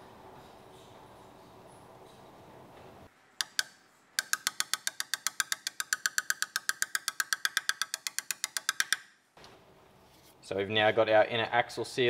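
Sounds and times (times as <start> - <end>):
hammer tapping metal: 3.4 - 9.2.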